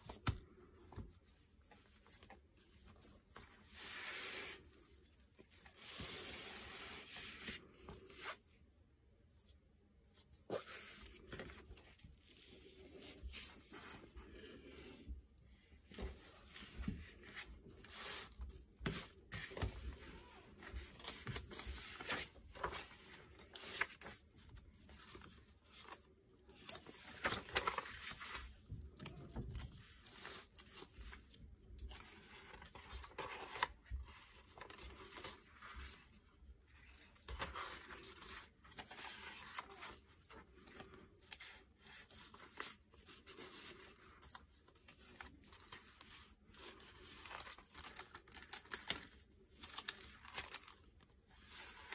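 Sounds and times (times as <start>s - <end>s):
paper pages rustling: 16.0s - 51.9s.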